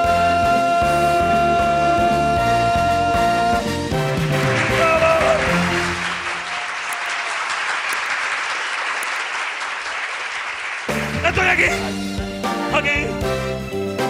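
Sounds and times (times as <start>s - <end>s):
song music: 0.0s - 6.6s, 10.7s - 14.0s
applause: 4.0s - 12.0s.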